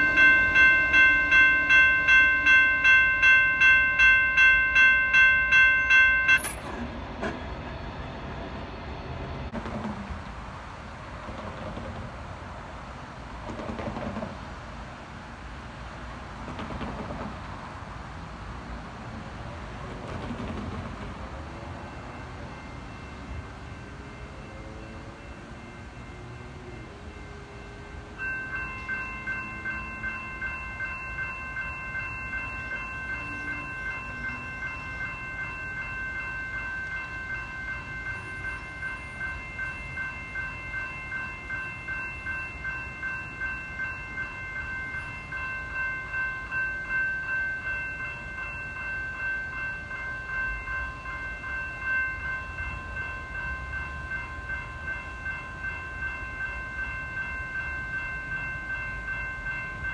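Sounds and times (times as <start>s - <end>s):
railroad crossing bell ringing: 0.0s - 9.6s, 20.7s - 59.9s.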